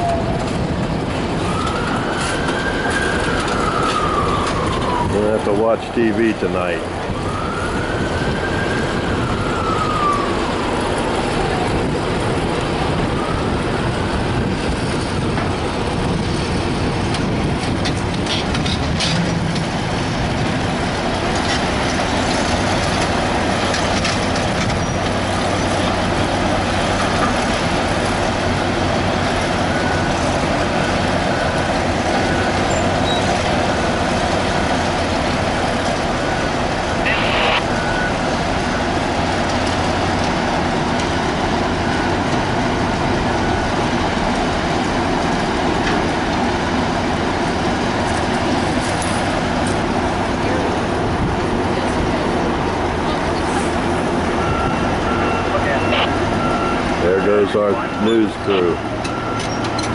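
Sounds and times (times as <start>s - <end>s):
siren wailing: 0.0s - 15.4s, 25.6s - 39.1s, 54.0s - 59.9s
diesel tractors running: 0.0s - 59.9s.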